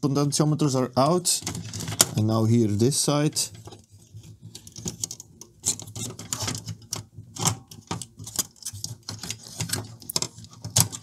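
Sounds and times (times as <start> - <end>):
plastic clicks and scrapes: 1.4 - 2.3, 3.4 - 11.0.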